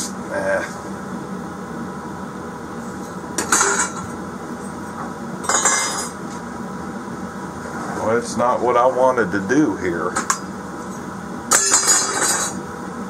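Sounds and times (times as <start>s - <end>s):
steady background hum: 0.0s - 13.0s
metal pipe clinking and rattling: 11.5s - 12.6s.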